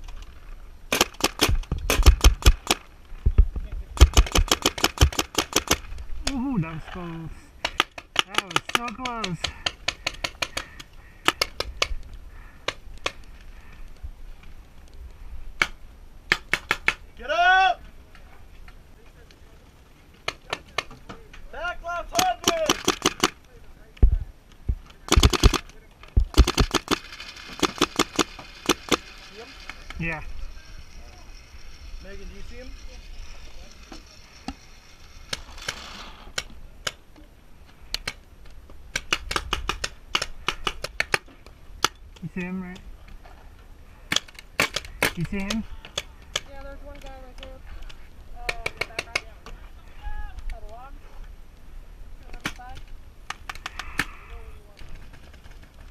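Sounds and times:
paintball markers firing: 0:00.9 - 0:02.8, 0:04.0 - 0:06.4, 0:07.6 - 0:12.0, 0:15.6 - 0:17.0, 0:22.1 - 0:23.4, 0:25.0 - 0:29.1, 0:38.9 - 0:42.0
paintball markers popping: 0:07.6 - 0:12.0, 0:38.9 - 0:42.0
paintballs smacking bunker: 0:52.3 - 0:54.1.

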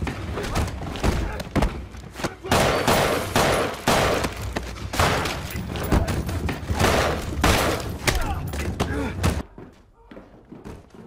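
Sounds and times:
pistol shots: 0:02.5 - 0:05.5.

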